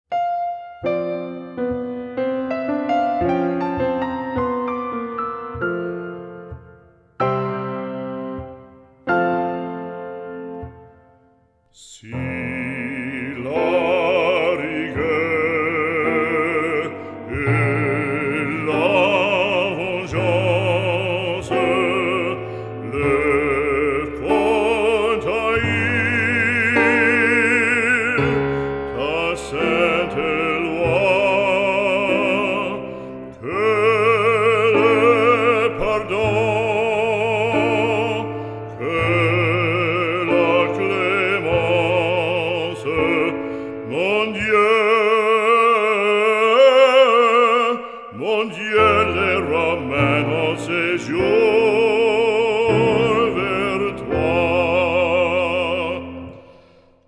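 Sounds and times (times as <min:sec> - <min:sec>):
instrumental accompaniment: 0:00.1 - 0:47.5
operatic singing voice: 0:10.6 - 0:57.0.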